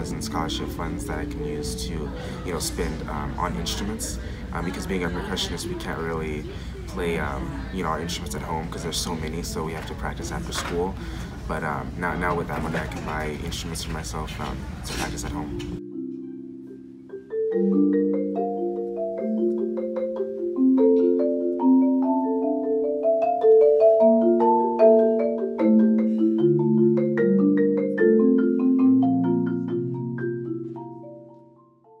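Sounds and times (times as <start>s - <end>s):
marimba playing chords and melody: 0.0s - 32.0s.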